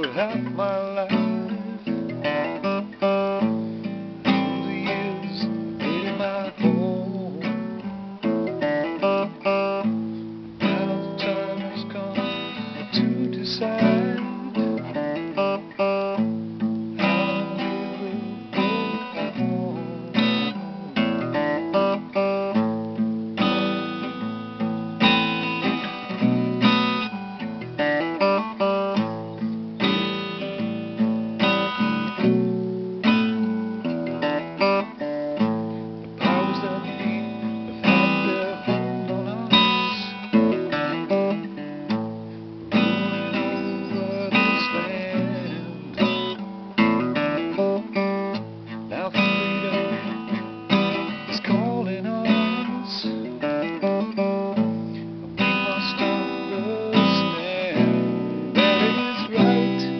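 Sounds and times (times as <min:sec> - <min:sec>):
acoustic guitar chords: 0:00.0 - 0:59.9.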